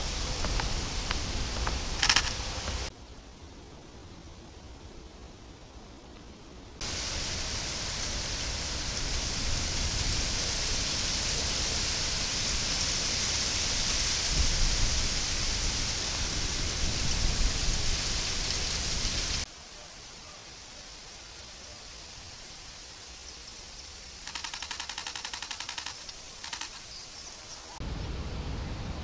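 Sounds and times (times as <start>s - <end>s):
loud steady hiss: 0.0s - 29.0s.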